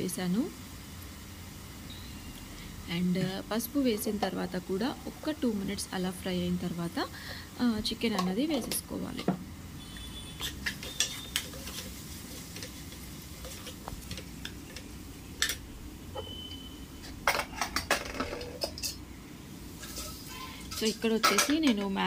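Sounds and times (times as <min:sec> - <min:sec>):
metal ladle scraping pot: 0:10.4 - 0:14.8, 0:19.8 - 0:21.8.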